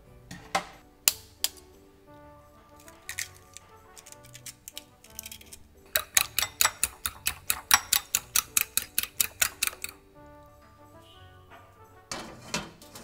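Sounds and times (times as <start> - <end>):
fork clinking against glass bowl: 4.0 - 10.0.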